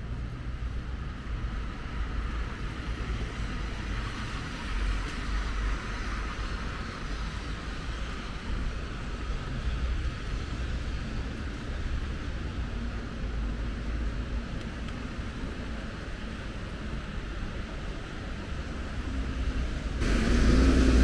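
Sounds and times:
traffic on wet roads: 0.0 - 21.0
rain hissing: 18.8 - 21.0
low rumble: 19.2 - 21.0.

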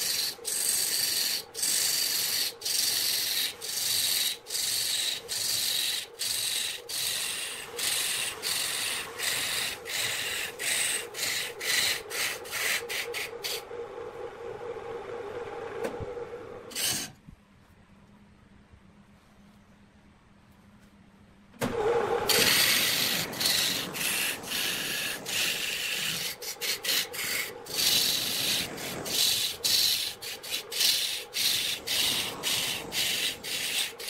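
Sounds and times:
gouge cutting wood on a lathe: 0.0 - 13.6, 21.7 - 34.0
lathe hum: 0.0 - 16.7, 21.6 - 34.0.

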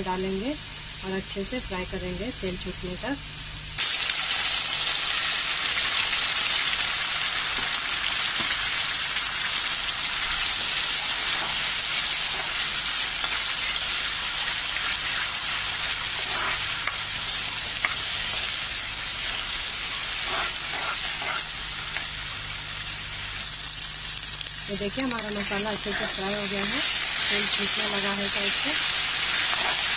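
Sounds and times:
paste sizzling in hot oil: 3.8 - 29.9
metal spoon scraping: 16.2 - 17.0, 20.1 - 21.5, 29.2 - 29.9.

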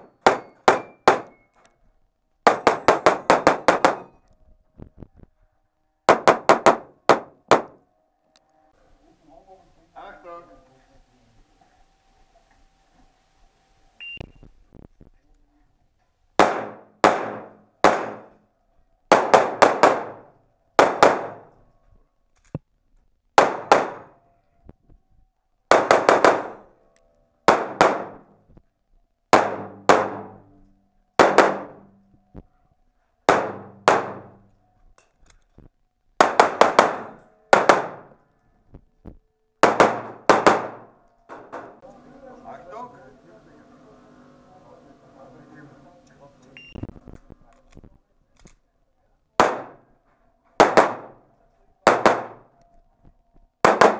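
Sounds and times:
pistol shots echoing indoors: 0.0 - 1.4, 2.5 - 4.2, 16.4 - 18.5, 19.1 - 21.6, 23.4 - 24.2, 25.7 - 26.7, 27.4 - 28.4, 29.3 - 30.5, 31.2 - 31.9, 33.3 - 34.6, 36.2 - 38.2, 39.6 - 41.8, 49.4 - 49.9, 50.6 - 51.2, 51.8 - 52.6, 53.6 - 53.9.

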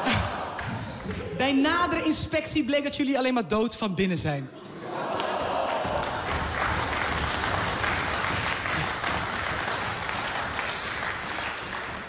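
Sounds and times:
audience applause: 4.9 - 12.0.

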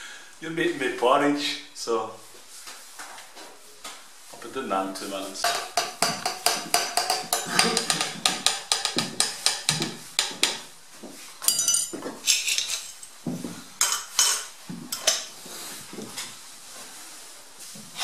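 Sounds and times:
spork clinking against metal pot: 5.4 - 10.4, 11.4 - 13.1.

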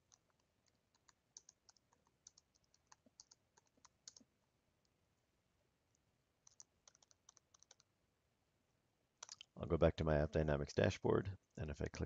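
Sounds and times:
computer keyboard typing: 0.0 - 4.3, 6.4 - 7.9, 9.2 - 9.4.

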